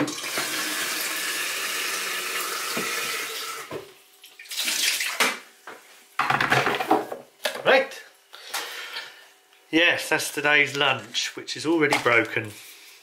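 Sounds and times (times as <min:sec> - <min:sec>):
tap water running into kettle: 0:00.0 - 0:05.4.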